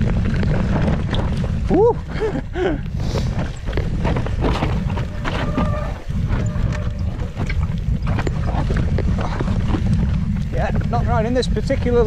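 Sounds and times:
wind rumble on microphone: 0.0 - 12.0
bike knocking over rocky ground: 3.3 - 10.9.

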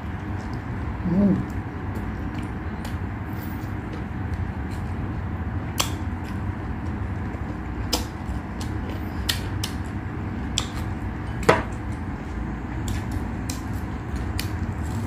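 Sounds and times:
chewing and wet mouth clicks: 1.5 - 3.0, 5.8 - 10.9, 12.8 - 15.0.

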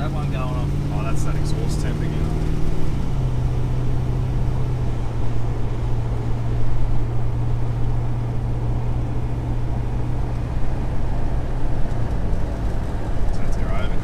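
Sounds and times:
low engine drone: 0.0 - 14.0
road noise: 0.0 - 14.0.

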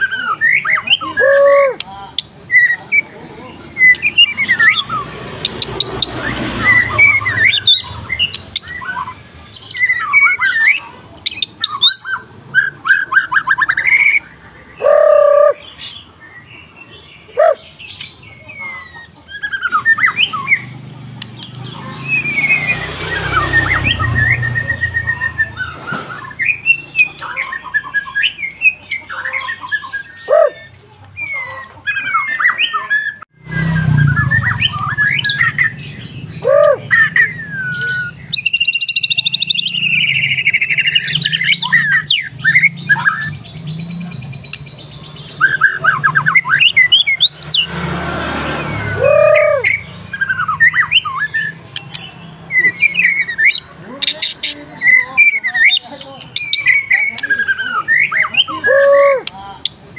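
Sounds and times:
harsh rasping bird call: 0.0 - 1.9, 11.6 - 16.1, 21.8 - 43.8, 45.4 - 55.8, 56.6 - 59.3
songbird whistling: 22.0 - 28.8, 29.4 - 44.7, 48.5 - 53.7.

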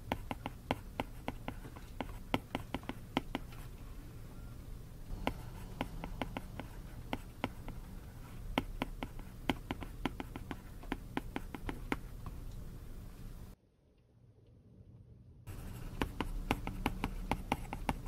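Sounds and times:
stylus tapping on glass screen: 8.5 - 12.2.

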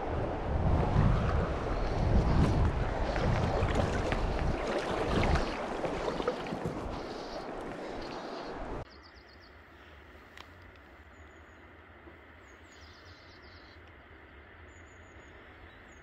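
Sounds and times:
wind rumbling on microphone: 0.0 - 8.8
river water rippling and splashing: 0.0 - 8.9.

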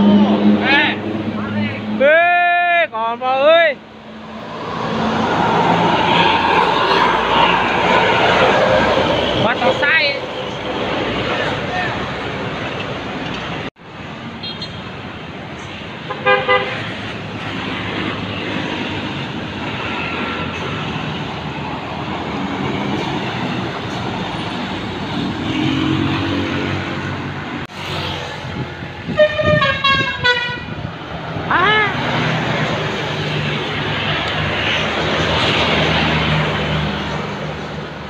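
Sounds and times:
bus engines running: 0.0 - 38.0
multi-tone bus horn melody: 16.1 - 16.8, 29.1 - 30.8.

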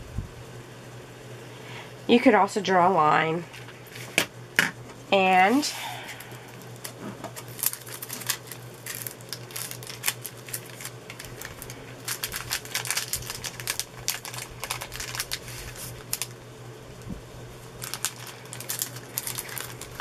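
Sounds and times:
plastic film clicking and crackling: 6.5 - 16.4, 17.8 - 20.0.

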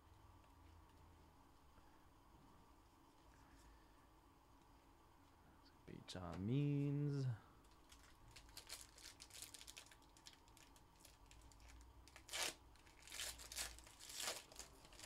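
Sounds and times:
foil card pack ripping: 7.9 - 15.0.

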